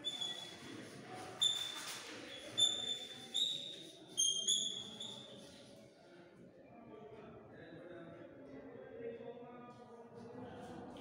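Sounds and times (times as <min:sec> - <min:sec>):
chalk squeaking on blackboard: 0:00.0 - 0:05.6.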